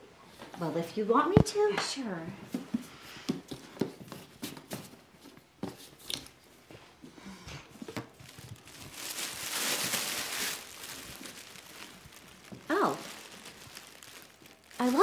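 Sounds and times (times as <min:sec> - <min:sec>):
paper and fabric rustling: 0:02.5 - 0:15.0
ribbon rustling: 0:07.7 - 0:15.0.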